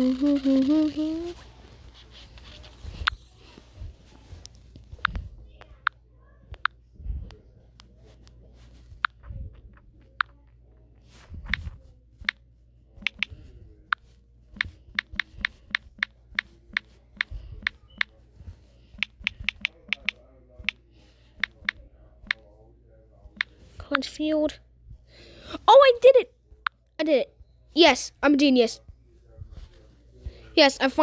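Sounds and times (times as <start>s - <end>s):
taps on phone keyboard: 13.0s - 13.3s, 19.0s - 20.8s.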